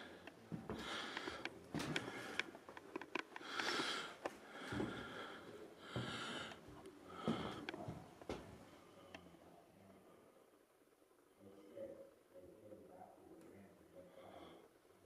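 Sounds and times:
breathing through the nose: 0:00.0 - 0:02.6, 0:03.4 - 0:07.8.

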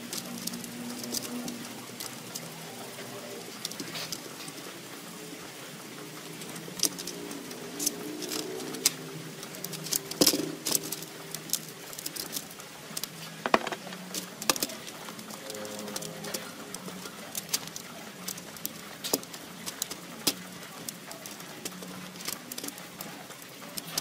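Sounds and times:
brush scrubbing metal parts: 0:00.0 - 0:04.9, 0:06.1 - 0:24.0
metal parts knocking on tray: 0:13.4 - 0:14.0.

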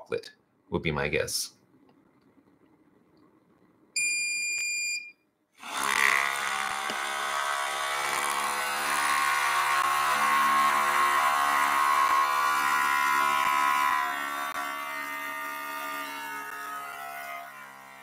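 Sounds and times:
single beep: 0:04.0 - 0:05.2
espresso maker pump buzzing: 0:06.0 - 0:07.4, 0:09.2 - 0:14.8.

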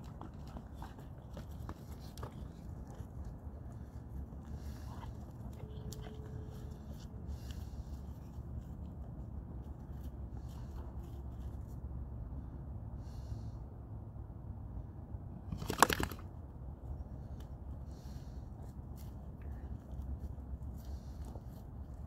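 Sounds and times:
low background rumble: 0:00.0 - 0:15.6, 0:16.2 - 0:22.0
dogs scuffing and rustling on grass: 0:17.9 - 0:22.0.

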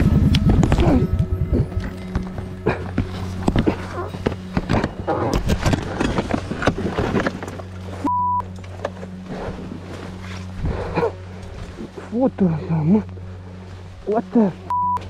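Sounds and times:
knocking scraping and rustling: 0:01.7 - 0:08.0
short single-tone beep: 0:08.0 - 0:08.4, 0:14.7 - 0:15.0.

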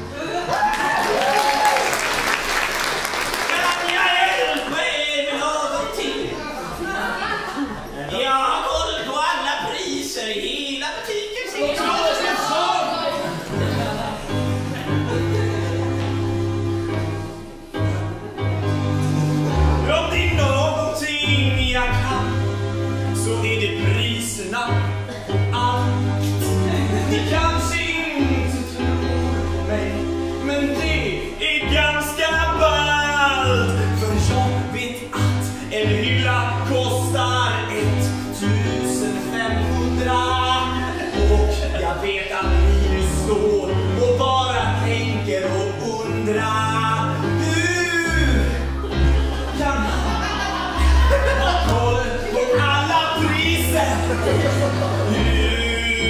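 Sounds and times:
man singing: 0:19.8 - 0:28.9, 0:29.6 - 0:48.9, 0:49.5 - 0:56.0.

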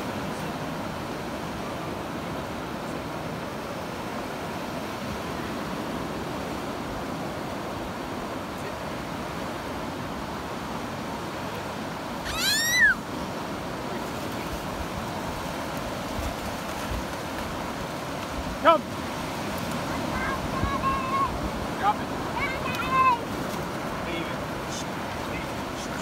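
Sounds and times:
surf washing on beach: 0:00.0 - 0:26.0
dog whining: 0:12.2 - 0:13.0.

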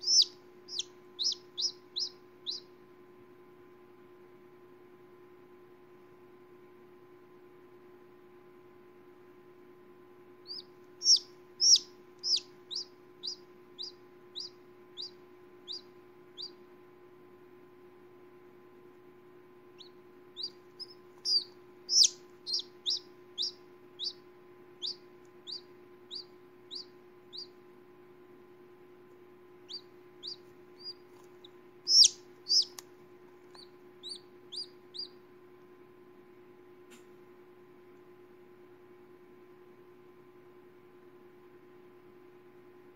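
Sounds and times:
chick peeping: 0:00.0 - 0:02.7, 0:10.4 - 0:16.6, 0:19.8 - 0:24.2, 0:24.8 - 0:27.6, 0:29.6 - 0:35.2.

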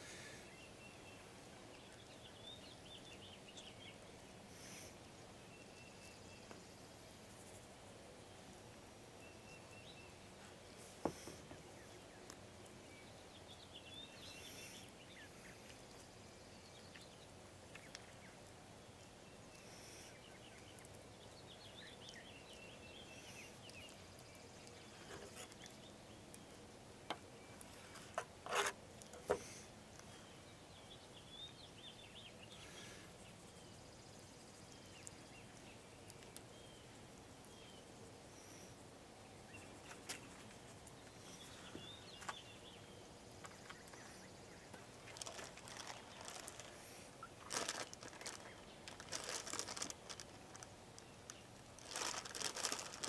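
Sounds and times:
small birds chirping: 0:00.0 - 0:53.0.

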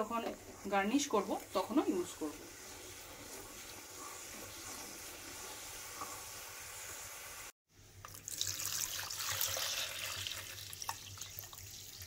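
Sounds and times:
chutney bubbling and sizzling: 0:00.0 - 0:12.0
water running: 0:00.0 - 0:12.0.

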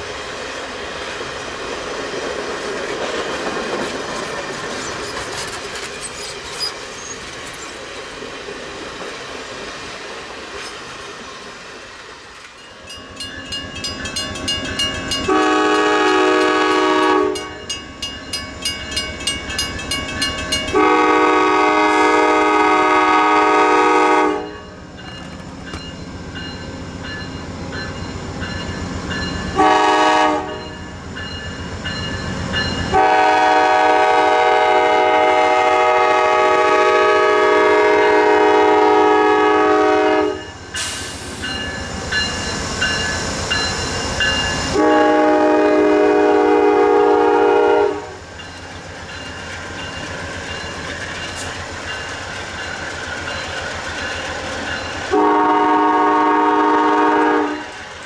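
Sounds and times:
train rumbling: 0:00.0 - 0:58.0
crossing signal bell ringing: 0:12.5 - 0:21.1, 0:24.4 - 0:29.7, 0:30.5 - 0:33.1, 0:40.4 - 0:45.3, 0:48.3 - 0:55.3
locomotive air horn: 0:15.3 - 0:17.6, 0:20.7 - 0:24.6, 0:29.6 - 0:30.7, 0:32.9 - 0:41.2, 0:44.7 - 0:48.2, 0:55.1 - 0:57.8.

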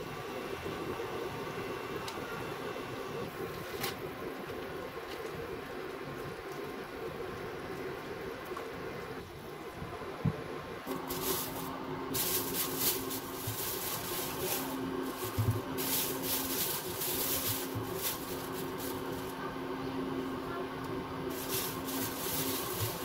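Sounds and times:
steady low hum: 0:00.0 - 0:23.0
plastic bag crinkling: 0:10.9 - 0:19.4, 0:21.3 - 0:23.0.

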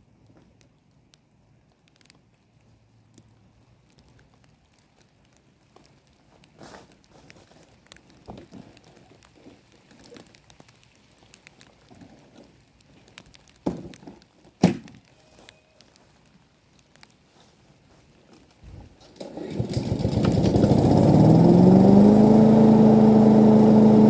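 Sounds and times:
rustling and small knocks: 0:00.0 - 0:19.2.

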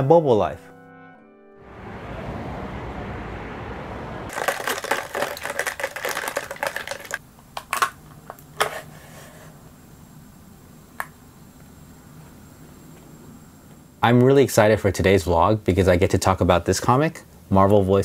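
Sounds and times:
plastic cup clattering clicks: 0:04.3 - 0:08.7
steady hiss: 0:05.9 - 0:18.0.

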